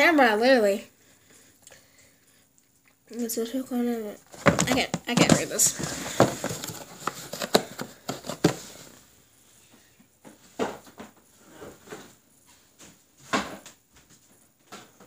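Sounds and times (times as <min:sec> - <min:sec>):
soft knocks and thuds: 0:04.3 - 0:06.8.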